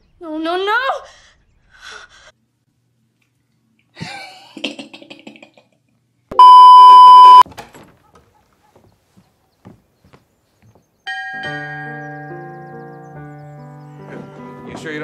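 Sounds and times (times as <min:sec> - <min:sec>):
censor bleep tone: 0:06.3 - 0:07.4.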